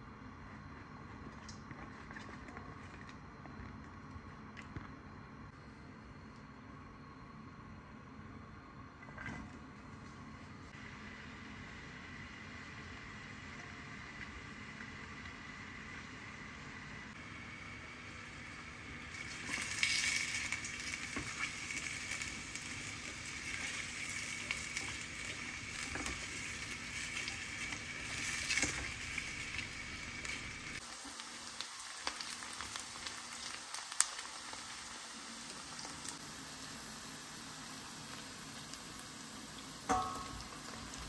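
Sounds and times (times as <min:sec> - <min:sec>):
vegetables sizzling in oil: 0:18.2 - 0:41.0.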